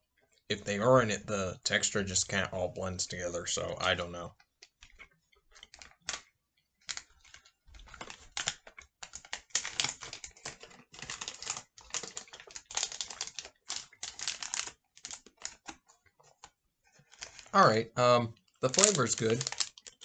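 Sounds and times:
chewing protein bar: 0:04.4 - 0:17.6, 0:18.4 - 0:20.0.

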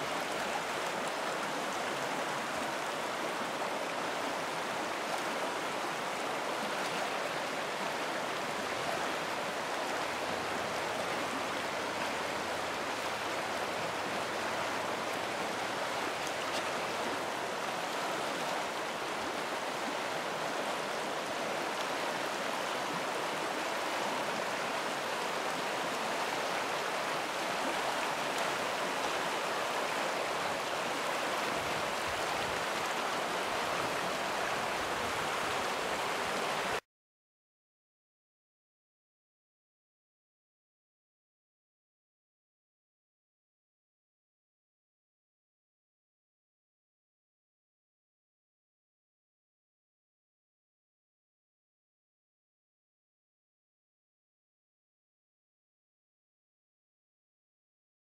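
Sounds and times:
river water rushing: 0:00.0 - 0:36.8.

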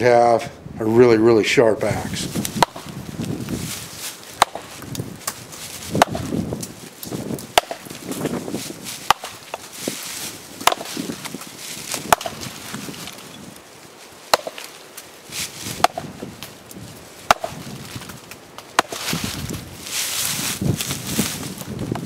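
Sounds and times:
axe chopping into a log: 0:02.5 - 0:03.0, 0:04.4 - 0:06.6, 0:07.4 - 0:08.3, 0:09.0 - 0:09.7, 0:10.6 - 0:11.1, 0:11.9 - 0:12.5, 0:14.3 - 0:14.7, 0:15.7 - 0:16.2, 0:17.2 - 0:17.6, 0:18.7 - 0:19.2.

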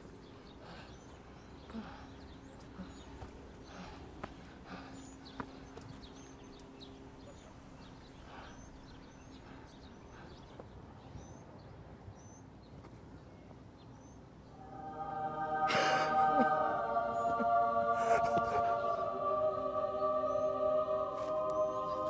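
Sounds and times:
faint outdoor ambience: 0:00.0 - 0:22.0.

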